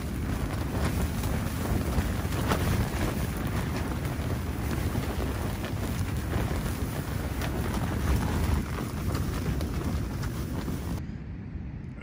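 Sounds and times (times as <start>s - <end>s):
tent fabric flapping: 0.0s - 11.0s
strong wind roaring: 0.0s - 11.8s.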